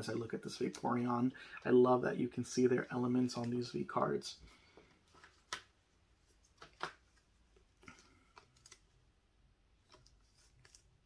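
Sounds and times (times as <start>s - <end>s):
trading cards rustling: 4.8s - 9.1s, 9.7s - 11.0s.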